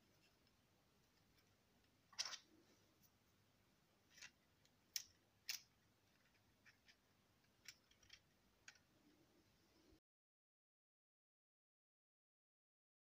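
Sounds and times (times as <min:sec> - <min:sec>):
plastic parts clicking: 0:04.1 - 0:08.9.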